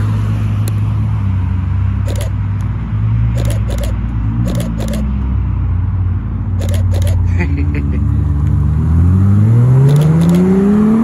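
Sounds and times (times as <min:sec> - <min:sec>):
short sharp clicks: 0:02.1 - 0:02.4, 0:03.4 - 0:05.1, 0:06.6 - 0:07.3, 0:09.9 - 0:10.5
sports car engine at low revs: 0:06.8 - 0:11.0.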